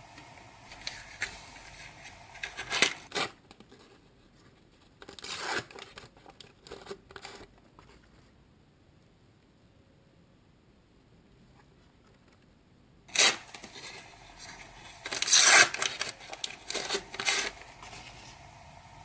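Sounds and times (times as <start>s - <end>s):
wrapper tearing and crinkling: 0.8s - 3.4s, 5.0s - 7.4s, 13.1s - 18.1s.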